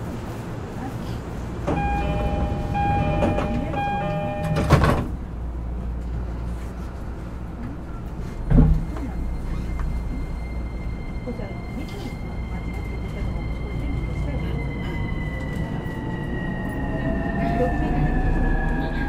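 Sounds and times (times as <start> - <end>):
train low rumble: 0.0 - 19.0
train inverter rising whine: 1.6 - 6.2
train door chime: 1.7 - 5.1
sliding doors closing thud: 1.7 - 5.2.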